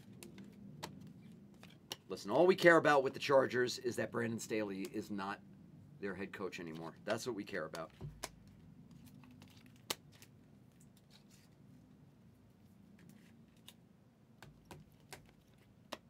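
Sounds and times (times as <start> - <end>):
low steady hum: 0.0 - 16.0
trading cards sliding and flicking: 6.6 - 11.6.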